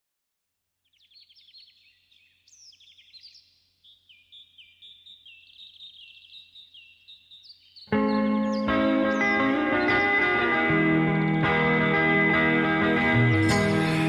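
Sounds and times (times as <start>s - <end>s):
birds chirping and whistling: 0.8s - 10.6s.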